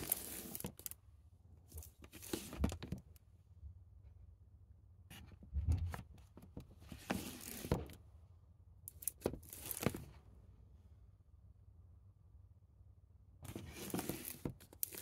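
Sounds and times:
plastic rustling: 0.0 - 0.9.

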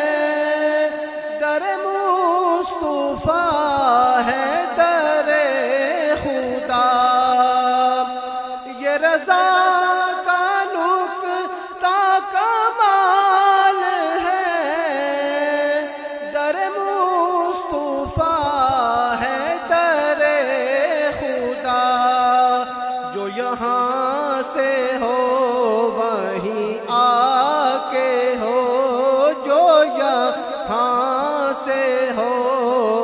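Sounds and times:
man singing through a microphone: 0.0 - 33.0.

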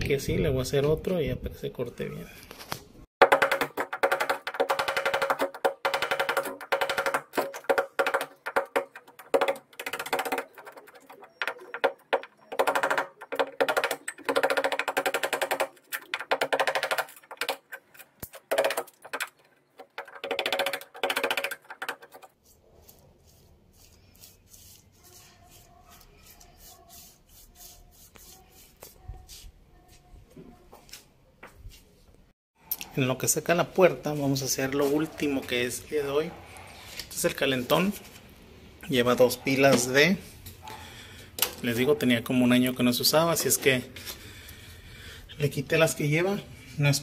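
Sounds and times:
hammer tapping a wood chisel: 3.2 - 17.6.

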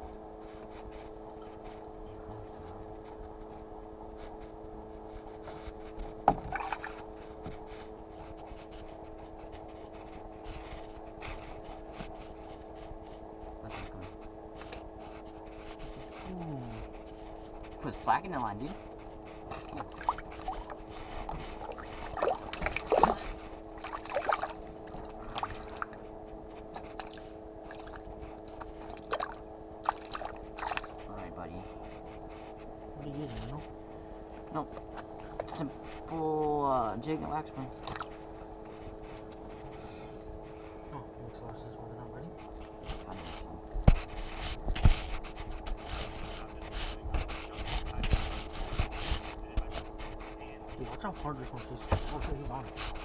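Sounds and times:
steady hum: 0.0 - 53.0
water splashing in a hole: 6.5 - 7.0, 21.6 - 26.0, 26.8 - 28.0, 28.8 - 31.0.

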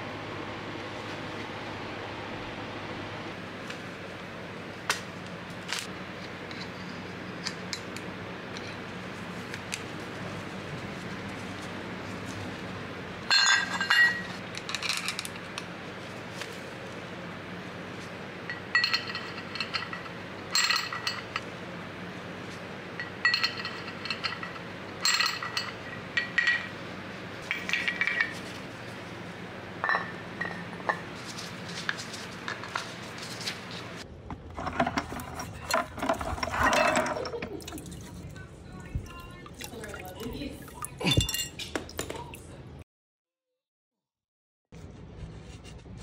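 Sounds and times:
steady low hum: 0.0 - 41.7
small metal parts clinking: 13.3 - 15.4
metal parts rattling: 34.6 - 37.3.

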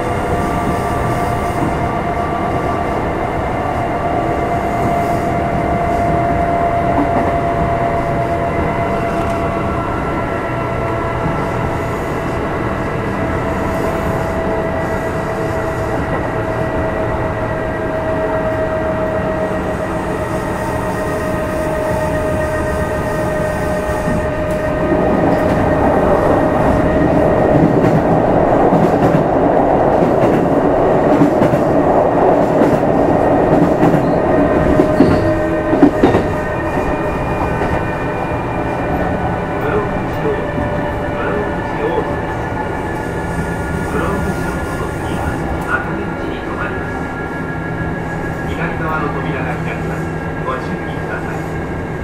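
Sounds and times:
train motor and gear whine: 0.0 - 52.0
wheels rumbling on rails: 0.0 - 52.0
rail-joint clacks: 33.5 - 37.9.

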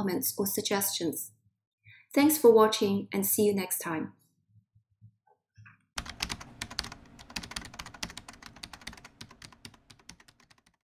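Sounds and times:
rapid typing on computer keyboard: 6.0 - 10.8.

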